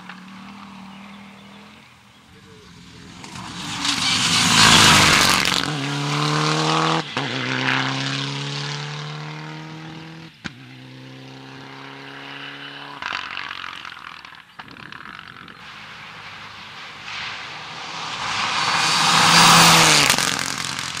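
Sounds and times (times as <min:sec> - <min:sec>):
rally car engine passing: 0:00.0 - 0:21.0
rough noisy engine: 0:14.8 - 0:21.0.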